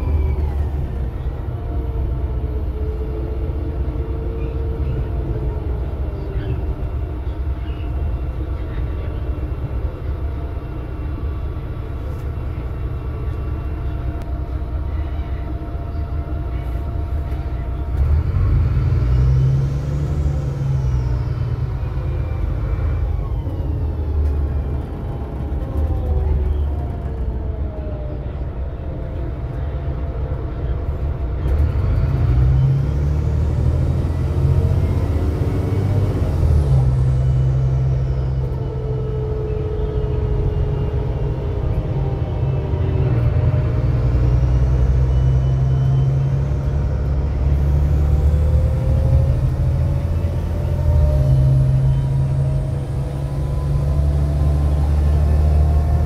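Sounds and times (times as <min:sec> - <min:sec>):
bus engine and road rumble: 0:00.0 - 0:56.0
rising and falling whines: 0:32.3 - 0:56.0.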